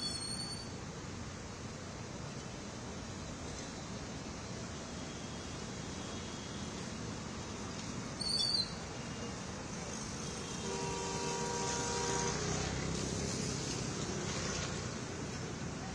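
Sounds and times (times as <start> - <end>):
brief high squeak: 0.0 - 0.8, 8.2 - 8.8
traffic on flooded street: 0.0 - 15.9
vehicle horn: 10.0 - 12.8.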